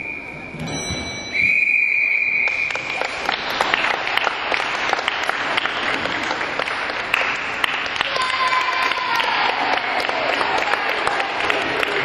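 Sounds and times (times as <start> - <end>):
referee whistle blast: 0.0 - 3.0
spectators clapping: 2.3 - 12.0.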